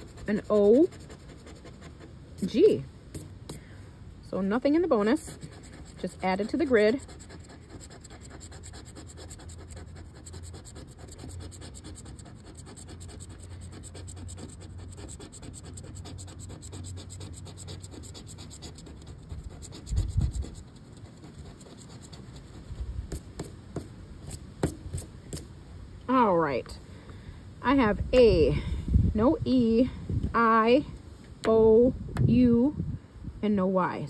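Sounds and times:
scratching lottery ticket: 0.0s - 3.6s, 4.6s - 23.3s.

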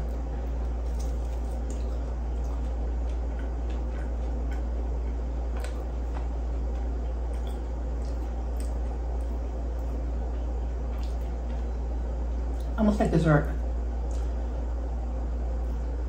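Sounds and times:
steady low hum: 0.0s - 16.0s
person chewing: 0.1s - 11.7s
mouth clicks and wet smacks: 7.3s - 9.9s, 14.0s - 14.4s.

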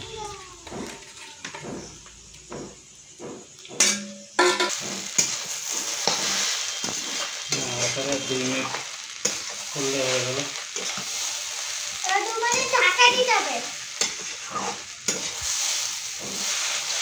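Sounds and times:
noodles sizzling in metal pan: 0.0s - 17.0s
metal spatula scraping pan: 3.8s - 11.7s, 13.9s - 17.0s.

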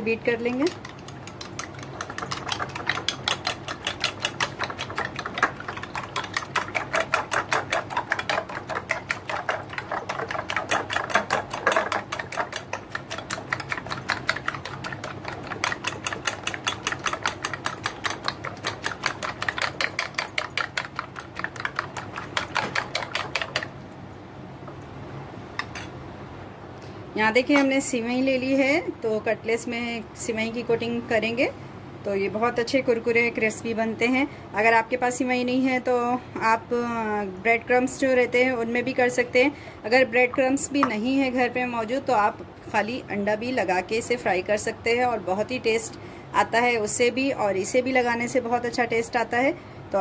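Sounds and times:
spoon beating eggs in a bowl: 0.3s - 23.7s.

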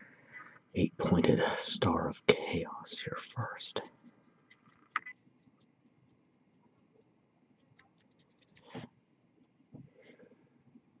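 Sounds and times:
light scratching: 7.8s - 8.8s.

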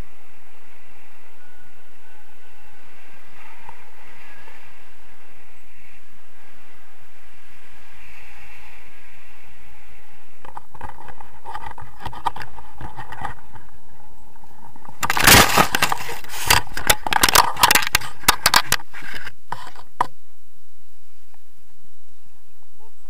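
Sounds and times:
wind noise on microphone: 0.0s - 23.0s
branches crackling and snapping: 14.8s - 18.8s.

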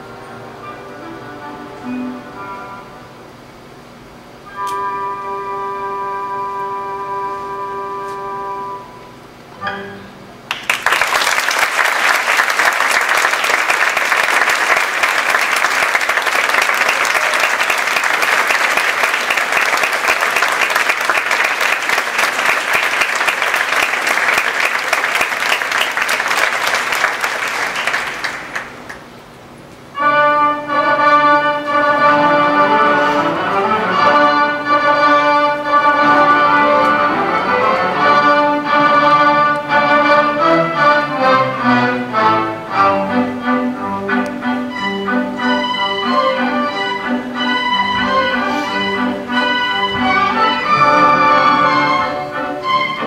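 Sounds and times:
orchestra playing: 0.0s - 3.5s, 4.2s - 10.3s, 12.0s - 28.9s, 29.9s - 53.0s
audience applauding: 10.5s - 29.2s.

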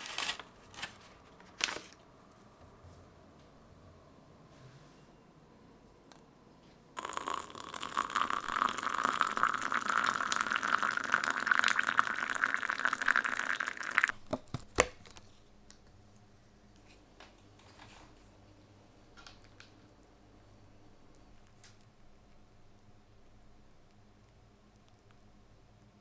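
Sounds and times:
water pouring into a mug: 7.0s - 14.1s.

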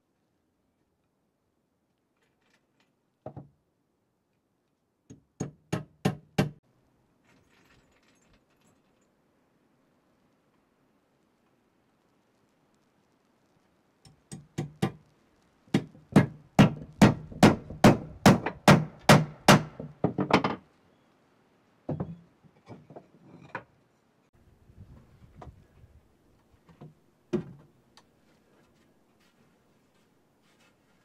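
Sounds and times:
hammer driving nail into wood: 5.1s - 6.6s, 15.8s - 19.9s.

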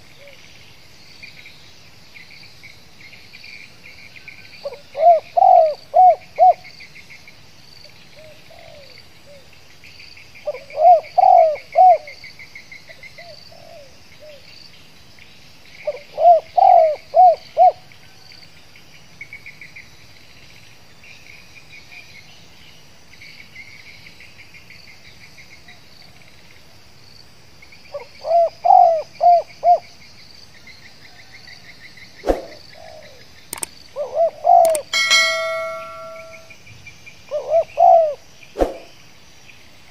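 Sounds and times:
dove cooing: 4.7s - 6.6s, 10.5s - 12.1s, 15.9s - 17.8s, 28.0s - 29.8s, 32.4s - 33.2s, 34.0s - 35.9s, 37.3s - 38.2s
insects chirring: 18.6s - 39.9s
sharp knock: 34.7s - 36.5s.

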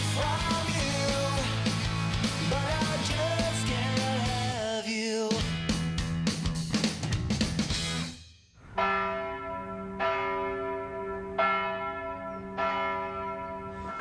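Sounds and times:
theme music with drums: 0.0s - 4.6s, 5.4s - 8.1s
church bell tolling: 8.6s - 14.0s.

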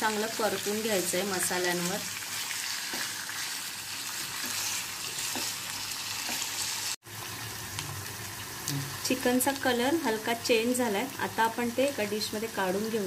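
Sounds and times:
chicken sizzling in hot oil: 0.0s - 13.0s
spatula tapping and scraping: 2.9s - 3.2s, 4.4s - 5.6s, 6.2s - 6.6s.

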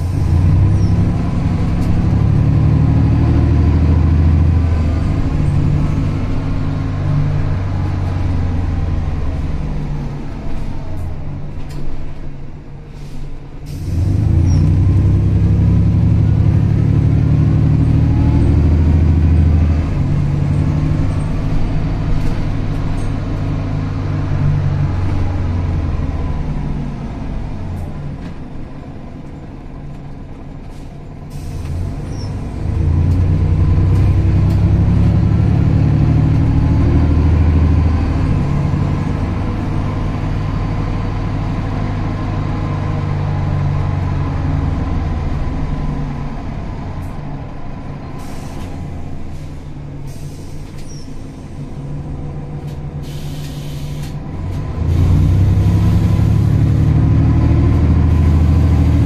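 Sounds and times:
bus engine drone: 0.0s - 59.0s
air brake hisses: 12.9s - 14.2s, 30.7s - 32.3s, 48.2s - 51.8s, 53.0s - 54.2s.

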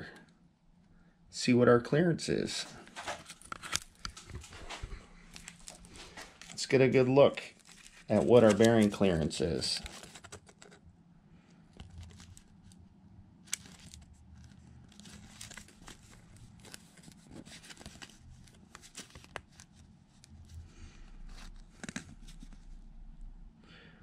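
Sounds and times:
paper rustling: 2.7s - 10.8s, 13.5s - 20.3s.

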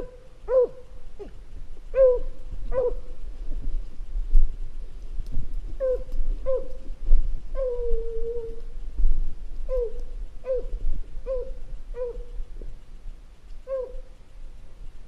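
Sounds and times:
dog yelping: 0.0s - 1.3s, 1.9s - 3.0s, 5.8s - 6.7s, 9.7s - 12.3s, 13.7s - 14.0s.

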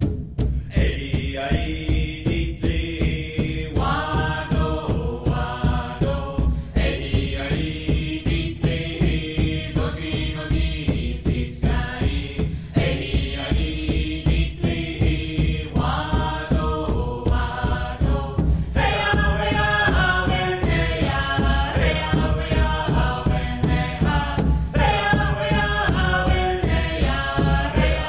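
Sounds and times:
chanting voices music: 0.4s - 28.0s.

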